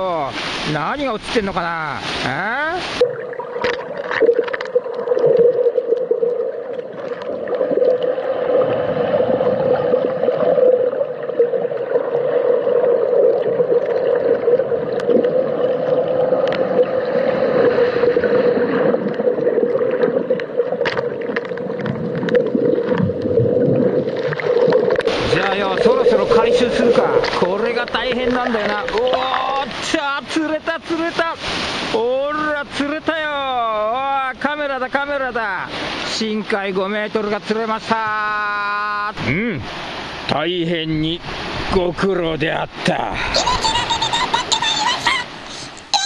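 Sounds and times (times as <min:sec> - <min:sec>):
muffled underwater surf rushing: 0:00.0 - 0:38.0, 0:39.1 - 0:44.3
clicks and crackles: 0:03.6 - 0:06.4, 0:16.4 - 0:16.7, 0:20.0 - 0:23.3.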